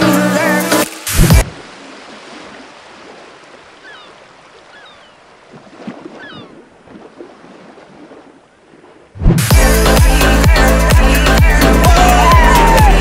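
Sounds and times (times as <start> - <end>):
small sea waves: 0.0 - 9.5.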